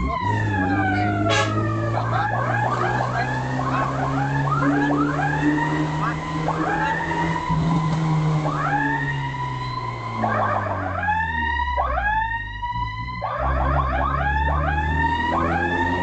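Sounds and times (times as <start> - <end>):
electronic emergency siren: 0.0 - 16.0
vehicle engine rumble: 0.0 - 16.0.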